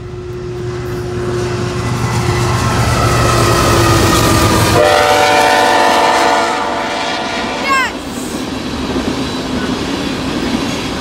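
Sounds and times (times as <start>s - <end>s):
locomotive engines droning: 0.0s - 11.0s
locomotive air horn: 3.5s - 7.7s.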